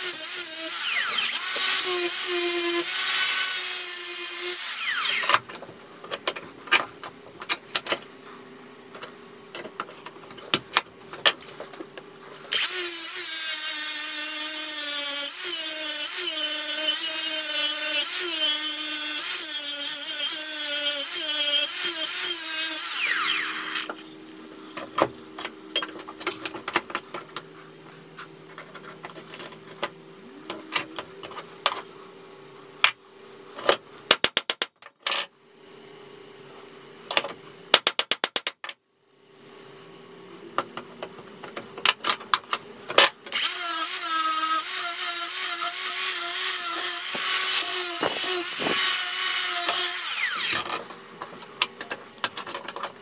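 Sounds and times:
angle grinder grinding steel: 0.0s - 5.4s, 12.5s - 24.0s, 43.3s - 50.8s.

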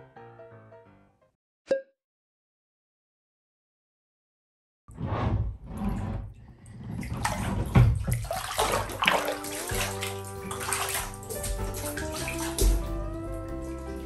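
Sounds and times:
background music: 0.0s - 1.2s, 9.0s - 14.0s
bath water sloshing and splashing: 5.3s - 14.0s.

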